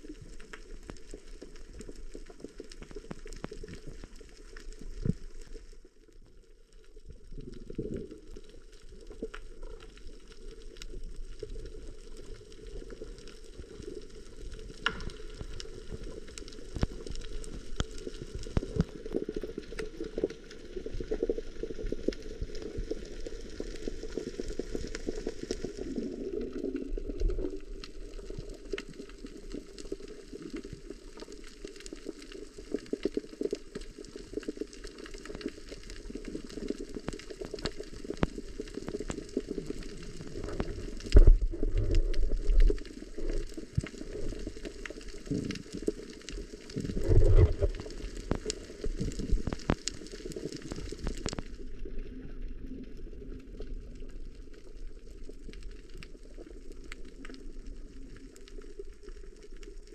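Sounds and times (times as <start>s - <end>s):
sharp crackling clicks: 7.5s - 21.4s, 23.3s - 51.8s
muffled underwater rush: 36.0s - 59.9s.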